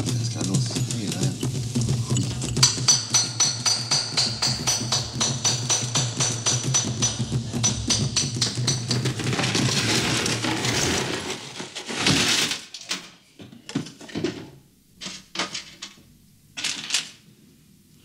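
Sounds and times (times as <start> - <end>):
stones clattering on metal: 0.1 - 12.7.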